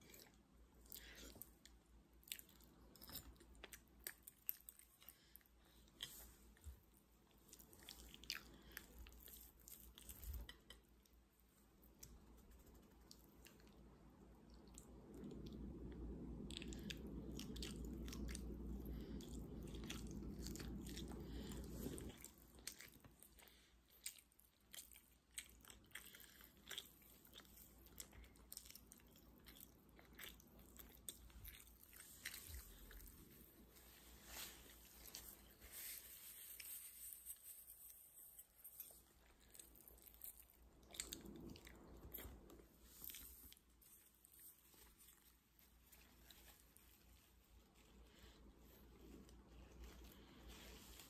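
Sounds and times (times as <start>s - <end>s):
chewing and mouth smacks: 0.0s - 35.5s, 38.4s - 51.0s
low steady hum: 0.0s - 51.0s.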